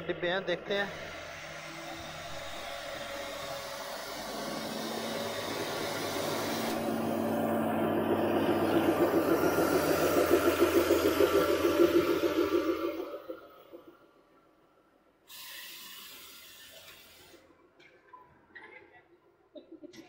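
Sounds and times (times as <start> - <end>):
diesel locomotive engine passing: 0.0 - 15.2.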